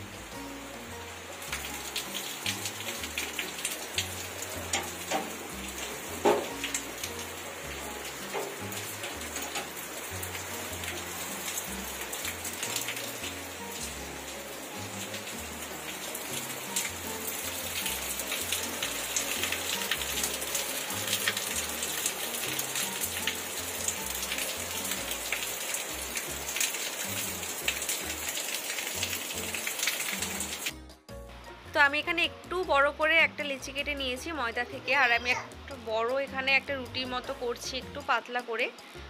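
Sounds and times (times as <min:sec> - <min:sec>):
rain falling: 0:00.0 - 0:30.7.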